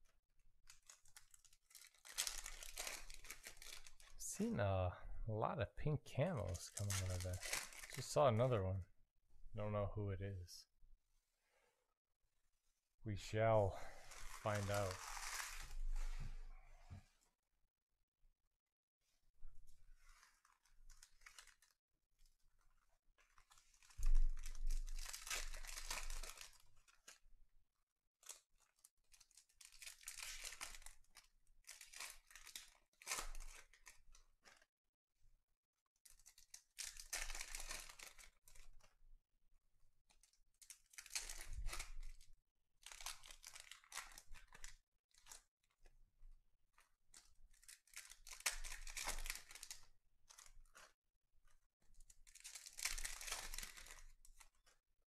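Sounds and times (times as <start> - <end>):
foil packs tearing and crinkling: 0.7 - 4.1, 6.6 - 8.2, 14.0 - 15.7, 23.3 - 27.0, 28.2 - 33.9, 36.2 - 38.7, 40.6 - 42.2, 42.8 - 45.4, 47.5 - 50.9, 52.2 - 54.6.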